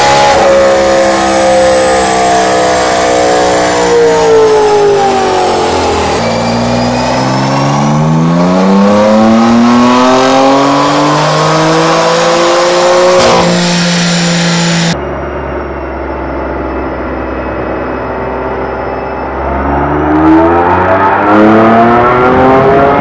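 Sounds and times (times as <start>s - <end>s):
car engine full-throttle pull: 0.0s - 15.0s
car engine winding down: 0.0s - 23.0s
sharp throttle close crack: 13.1s - 15.0s.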